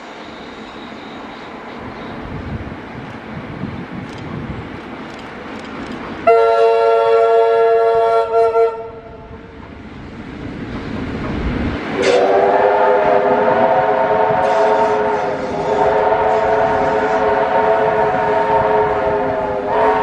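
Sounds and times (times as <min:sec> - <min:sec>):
passing train rumble: 0:00.0 - 0:20.0
steam locomotive whistle: 0:06.2 - 0:09.4, 0:12.0 - 0:20.0.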